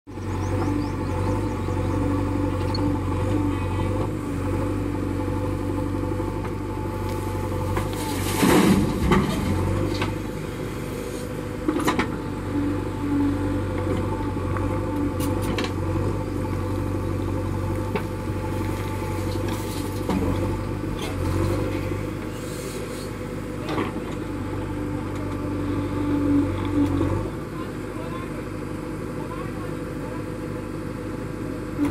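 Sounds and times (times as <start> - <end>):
diesel engine running: 0.1 - 31.9
backhoe digging soil: 0.5 - 12.8, 13.5 - 27.4.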